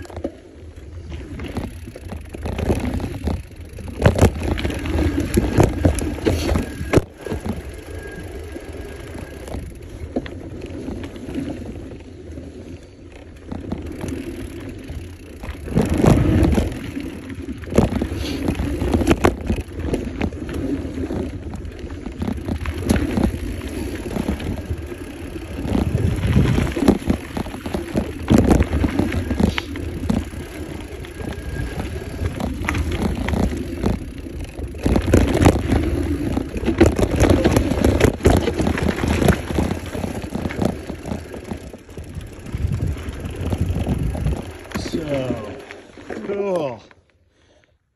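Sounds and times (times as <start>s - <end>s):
bike rattling over bumps: 0.0s - 47.6s
bike tyres rolling over dirt: 0.0s - 47.9s
wind on microphone: 25.5s - 34.0s, 42.0s - 45.1s.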